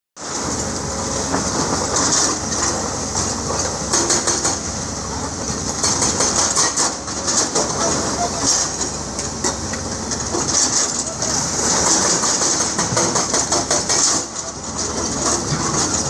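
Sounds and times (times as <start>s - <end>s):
excavator diesel engines running: 0.2s - 16.0s.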